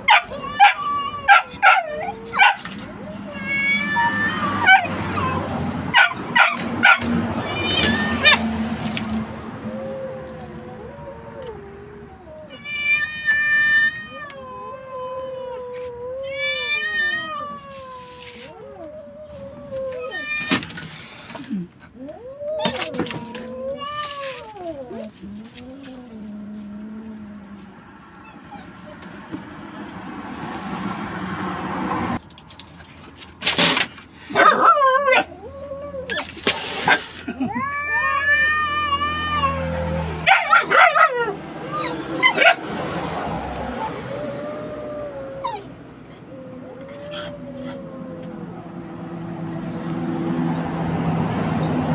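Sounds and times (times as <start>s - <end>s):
dog yelping: 0.0s - 8.5s, 22.0s - 25.1s, 28.2s - 29.2s, 34.3s - 42.8s, 43.5s - 48.4s
kitten yowling: 0.0s - 8.6s, 9.6s - 20.7s, 22.0s - 26.7s, 34.4s - 42.6s, 43.5s - 49.0s
cat hissing: 3.4s - 9.0s, 36.0s - 40.7s.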